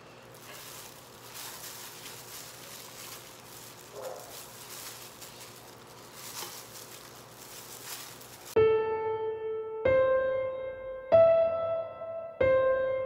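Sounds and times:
plastic glove crinkling: 0.0s - 8.6s
squishing of coated meat: 0.0s - 8.6s.

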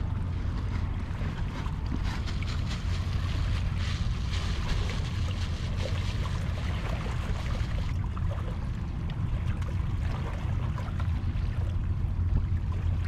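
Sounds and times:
sea waves washing: 0.0s - 13.0s.

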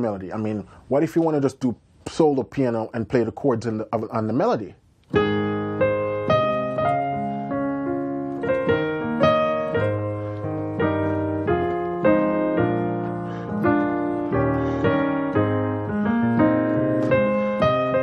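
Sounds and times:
solo piano gospel chords: 5.0s - 18.0s.

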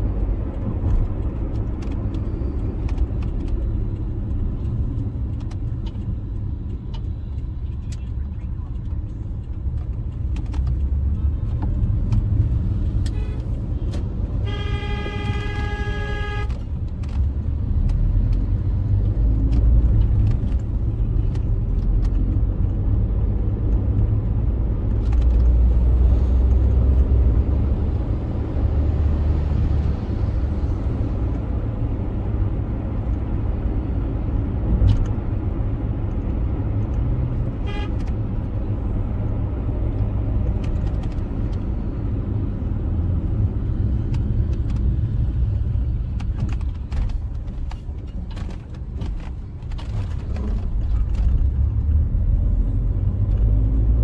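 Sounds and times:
car driving on city street: 0.0s - 54.0s
car horn: 14.3s - 16.7s, 37.5s - 38.2s.

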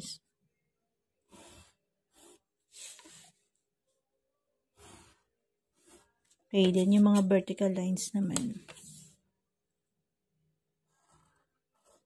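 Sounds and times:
pencil scratching on paper: 1.2s - 3.8s, 4.6s - 7.4s, 10.7s - 12.0s.

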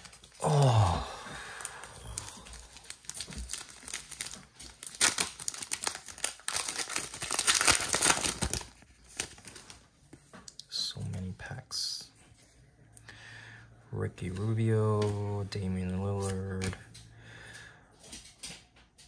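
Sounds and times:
plastic wrapper tearing and crinkling: 0.0s - 0.7s, 1.6s - 9.9s.

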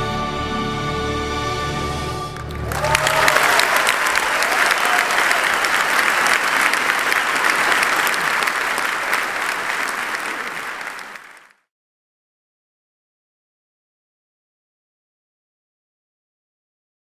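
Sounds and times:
audience applauding: 2.4s - 11.6s.

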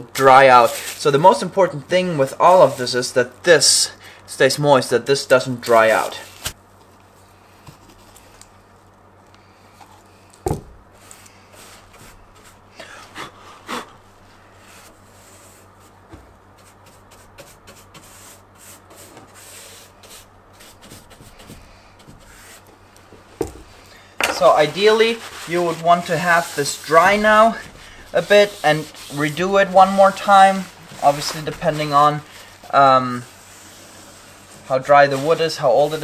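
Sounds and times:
paintbrush strokes on wood: 14.3s - 22.7s, 24.4s - 36.0s.

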